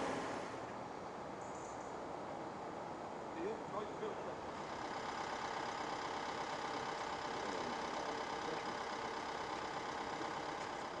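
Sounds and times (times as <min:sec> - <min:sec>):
heavy machine engine idling: 0:00.0 - 0:00.8, 0:03.7 - 0:11.0.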